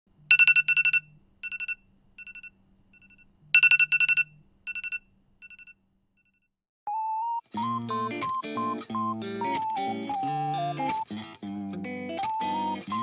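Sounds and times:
electronic alarm beeps: 0:00.3 - 0:05.7.

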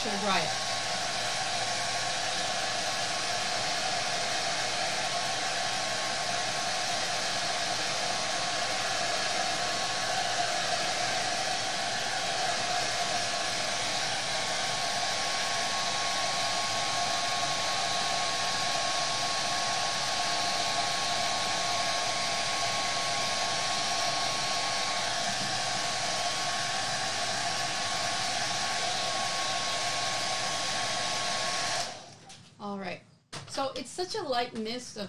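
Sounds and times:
blow dryer running: 0:00.0 - 0:32.2.

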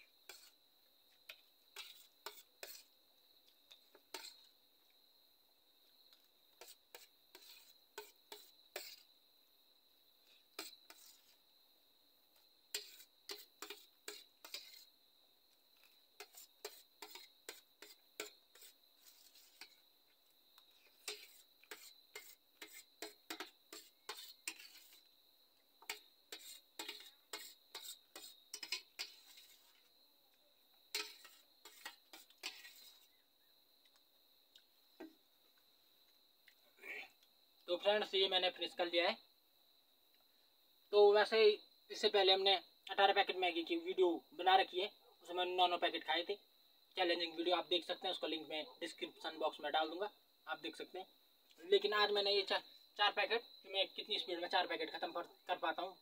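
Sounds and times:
spoon scraping a metal plate: 0:00.2 - 0:00.6, 0:01.3 - 0:02.9, 0:03.9 - 0:04.5, 0:06.6 - 0:09.1, 0:10.6 - 0:11.4, 0:12.7 - 0:14.9, 0:16.2 - 0:19.8, 0:20.8 - 0:25.1, 0:25.8 - 0:29.8, 0:30.9 - 0:33.1.

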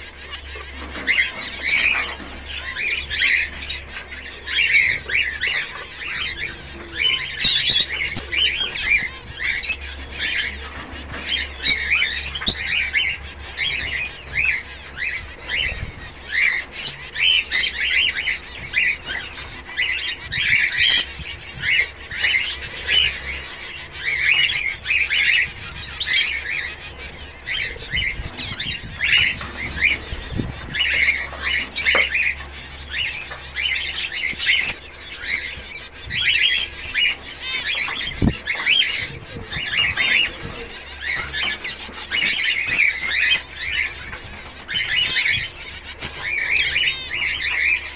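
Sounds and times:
finches calling: 0:00.0 - 0:47.9.

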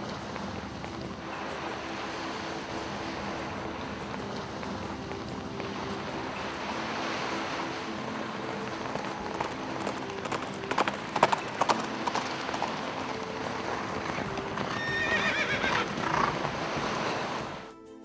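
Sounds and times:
hoofbeats on sand: 0:00.0 - 0:17.7
horse whinnying: 0:14.0 - 0:16.4.

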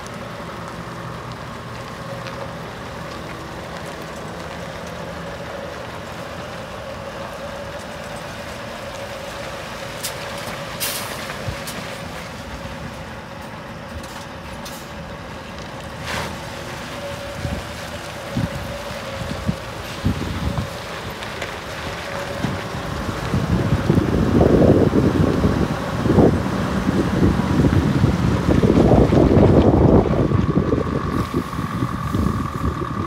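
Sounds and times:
truck diesel engine idling: 0:00.0 - 0:33.0.

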